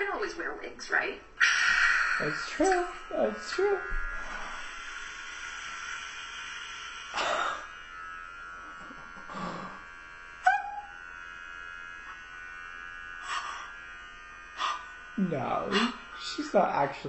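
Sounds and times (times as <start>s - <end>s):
electric hair clippers buzzing: 1.5s - 17.0s
breathy sounds: 9.3s - 9.8s.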